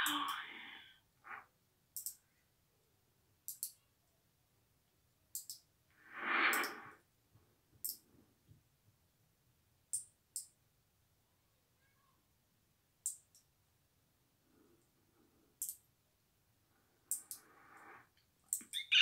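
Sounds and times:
faint sharp clicks: 2.0 - 2.2, 3.4 - 3.8, 5.3 - 5.7, 6.4 - 6.9, 7.8 - 8.1, 9.9 - 10.6, 13.0 - 13.5, 15.6 - 15.9, 17.1 - 18.9
breathy exhale: 6.0 - 7.0, 17.3 - 18.1.

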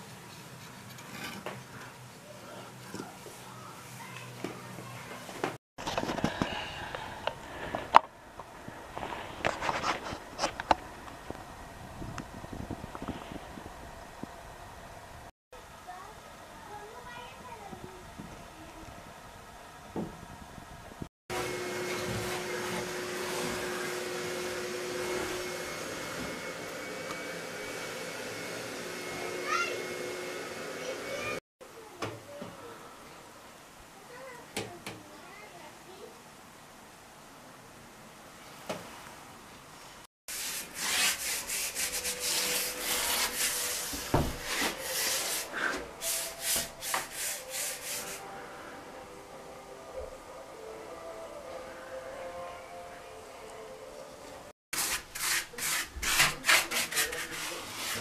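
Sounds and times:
hand rubbing on wood: 40.3 - 48.2, 54.8 - 58.0.

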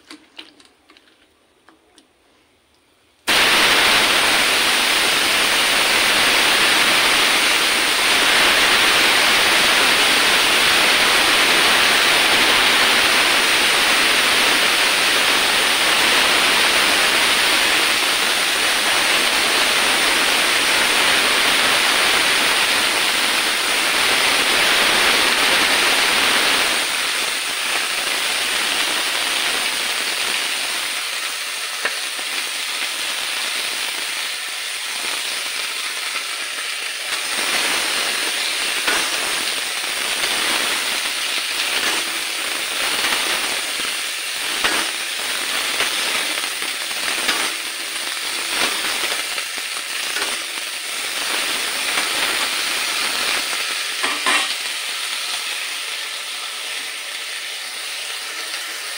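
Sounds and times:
vegetables sizzling in oil: 3.2 - 58.9
spatula scraping and knocking pan: 54.0 - 54.6.

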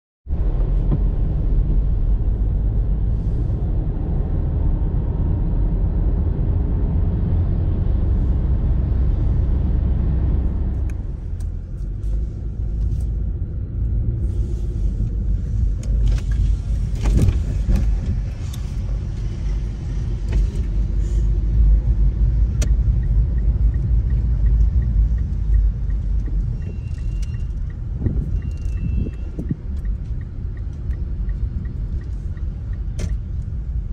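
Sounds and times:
car road and engine rumble: 0.2 - 33.9
faint regular ticking: 22.6 - 33.8.

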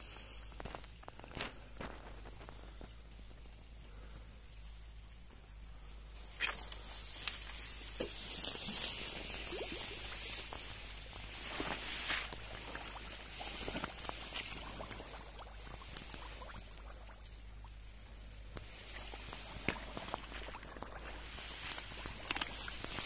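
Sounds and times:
footsteps through dry grass: 0.0 - 23.0
steady high hiss: 0.0 - 23.0
stems and twigs snapping: 18.5 - 23.0.

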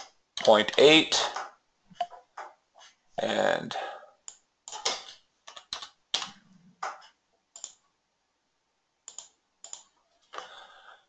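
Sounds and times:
keyboard and mouse clicking: 4.2 - 7.8, 9.1 - 9.9.

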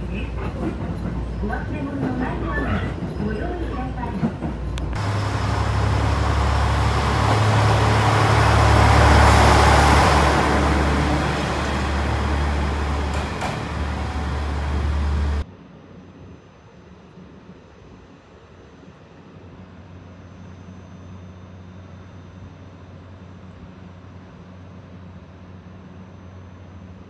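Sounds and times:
electric train humming: 0.0 - 15.4
rushing noise: 5.0 - 15.4.

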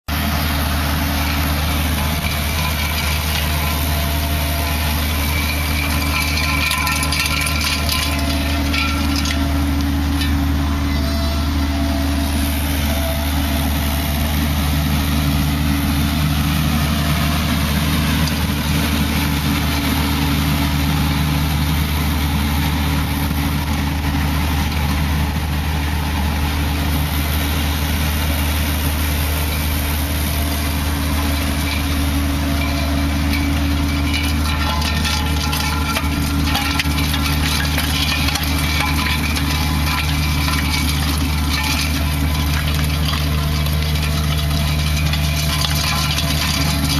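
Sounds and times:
diesel engine running: 0.0 - 46.9
stones clattering against rake: 0.3 - 11.1, 28.3 - 46.9.

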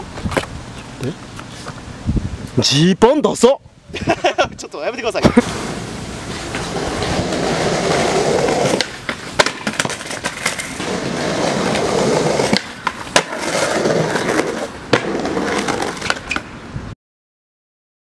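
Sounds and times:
skateboard wheels rolling on stone: 5.1 - 16.5
skateboard clacks: 5.3 - 16.5.

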